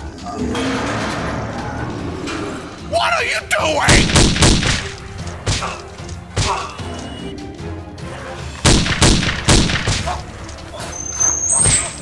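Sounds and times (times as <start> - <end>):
background music: 0.0 - 12.0
gunshot sound effects: 3.9 - 4.9, 8.6 - 10.2.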